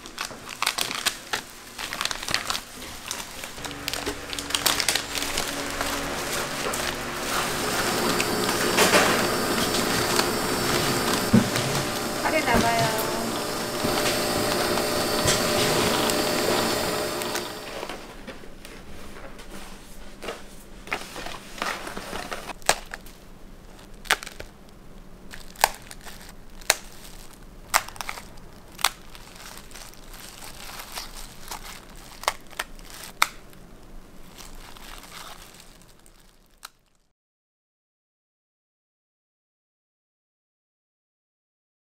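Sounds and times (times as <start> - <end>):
rice chips cracking: 0.0 - 12.2, 22.5 - 37.1.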